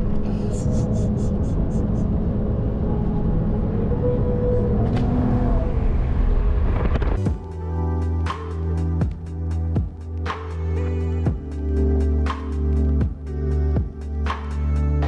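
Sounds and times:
car road noise rumble: 0.0 - 7.5.

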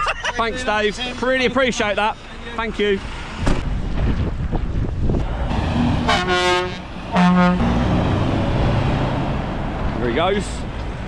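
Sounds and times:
truck diesel engine rumble: 0.0 - 11.0
truck horn blasts: 6.0 - 7.9.

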